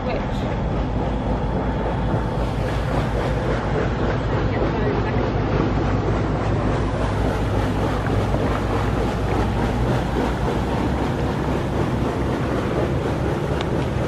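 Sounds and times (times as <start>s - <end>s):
boat engine hum: 0.0s - 14.0s
rushing water: 0.0s - 14.0s
wind buffeting microphone: 0.0s - 14.0s.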